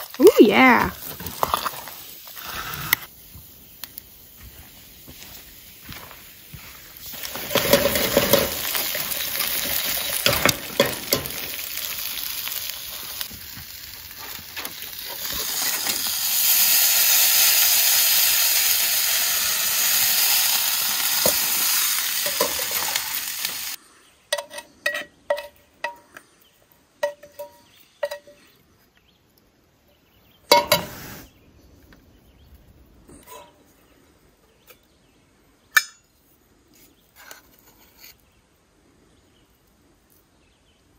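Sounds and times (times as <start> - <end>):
steaks sizzling over coals: 0.0 - 23.8, 30.5 - 31.4.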